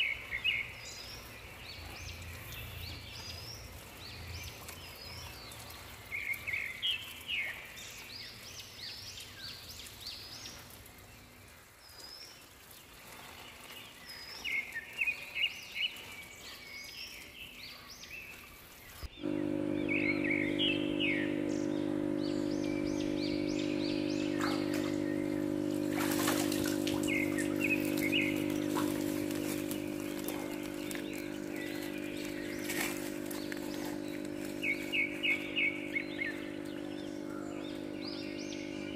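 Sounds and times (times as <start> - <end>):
mechanical hum: 19.0 - 38.9
birds chirping and whistling: 26.0 - 38.9.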